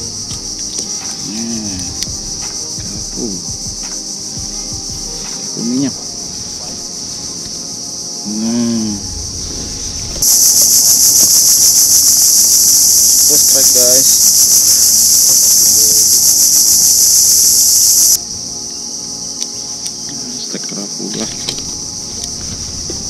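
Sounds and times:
faint steady insect hum: 0.0 - 23.0
loud pulsing insect buzz: 0.0 - 23.0.

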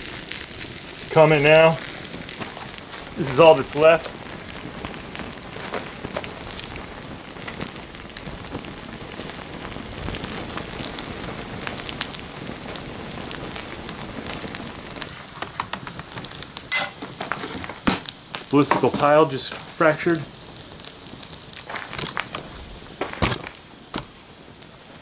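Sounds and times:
fire hissing and crackling: 0.0 - 25.0
tile cracking: 21.7 - 24.1.

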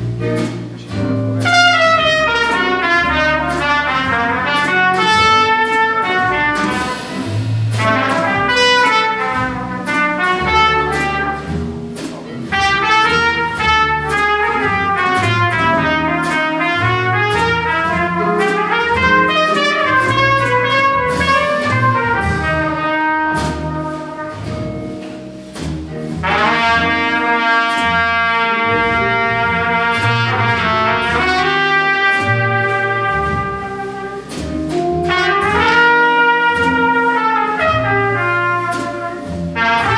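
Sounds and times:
double bass: 0.0 - 39.9
drums on cymbals: 0.0 - 39.9
trumpet solo: 1.4 - 11.8, 12.5 - 24.9, 26.2 - 39.9.

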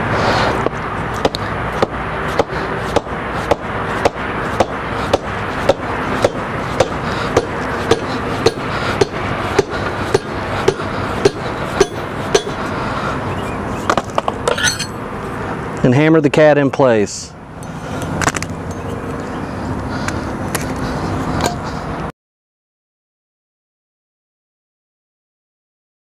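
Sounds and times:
hammer striking steel rod: 1.2 - 12.6.

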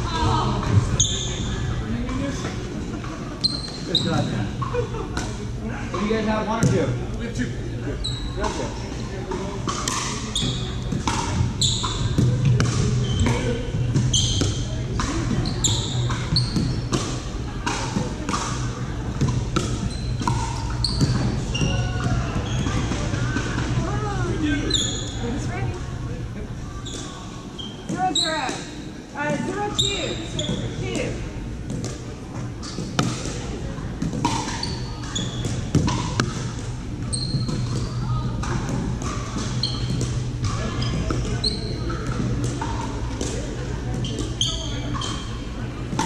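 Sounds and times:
steady low hum: 0.0 - 46.0
shoes squeaking on hardwood: 37.1 - 38.0.

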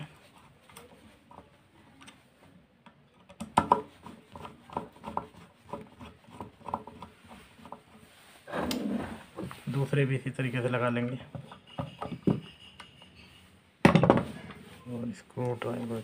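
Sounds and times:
screwdriver clicking and scraping: 0.1 - 2.2, 2.8 - 8.0.

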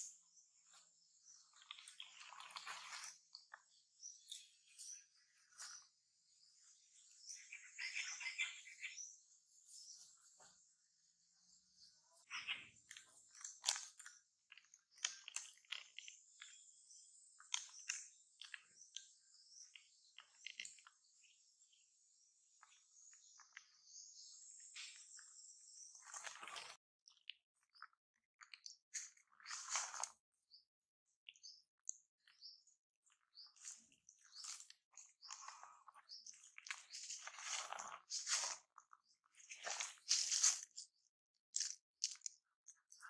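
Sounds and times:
monkey mouth clicks and crunching: 1.6 - 3.5, 12.9 - 16.6, 41.5 - 43.0
crunching of dry leaves: 25.9 - 26.8, 29.0 - 30.2, 33.3 - 41.0.

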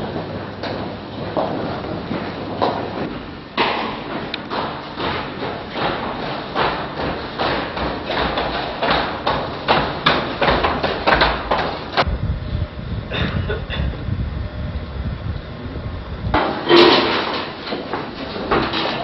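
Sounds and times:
regular thuds: 0.0 - 12.2.

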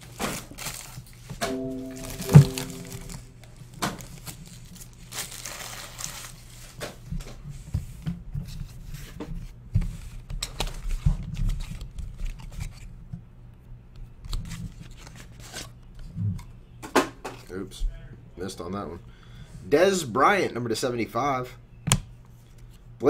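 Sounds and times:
foil wrapper crinkling and tearing: 5.1 - 6.3.

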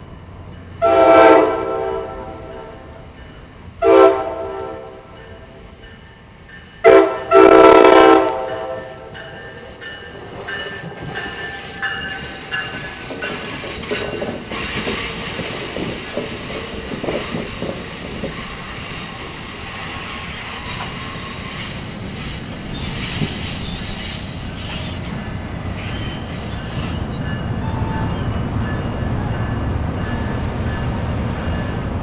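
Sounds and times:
train rumble: 0.0 - 32.0
train wheels clicking on rail joints: 8.4 - 32.0.

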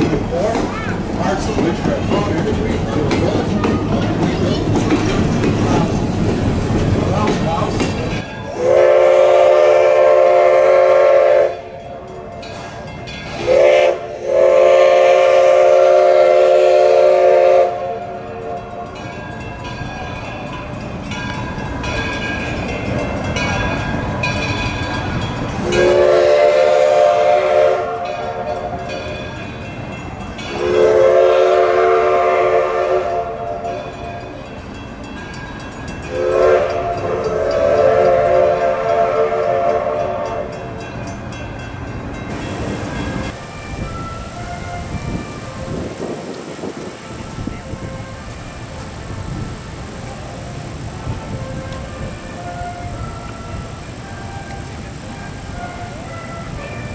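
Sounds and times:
train rumble and hiss: 0.0 - 56.9
steam locomotive whistle blasts: 8.5 - 12.0, 13.4 - 19.0, 25.6 - 29.0, 30.5 - 34.0, 36.1 - 40.6, 51.3 - 56.9.

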